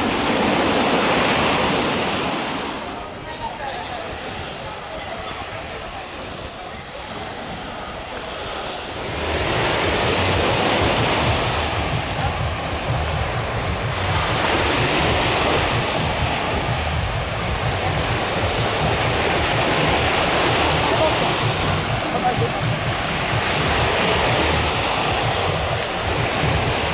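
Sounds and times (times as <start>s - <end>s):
small waves washing on sand: 0.0s - 26.9s
wind rumbling on microphone: 0.0s - 26.9s.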